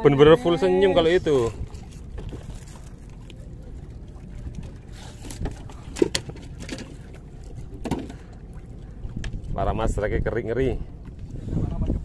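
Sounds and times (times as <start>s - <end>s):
boat engine rumble: 0.0s - 12.0s
water noise: 0.0s - 12.0s
wind: 0.0s - 12.0s.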